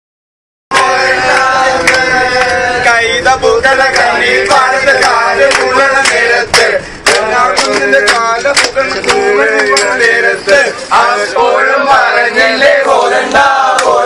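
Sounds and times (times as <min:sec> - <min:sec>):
hand claps: 0:00.7 - 0:02.6, 0:03.9 - 0:10.6, 0:13.3 - 0:13.9
men singing together: 0:00.7 - 0:14.0.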